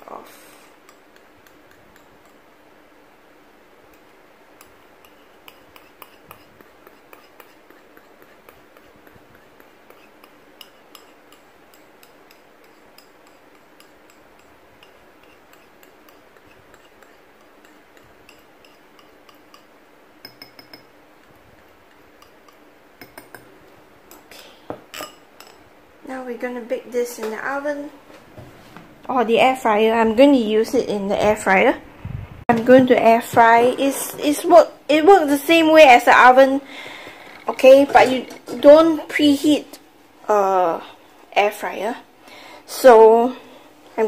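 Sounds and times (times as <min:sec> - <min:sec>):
utensil scraping ceramic bowl: 0:04.6 - 0:19.7, 0:36.2 - 0:39.5.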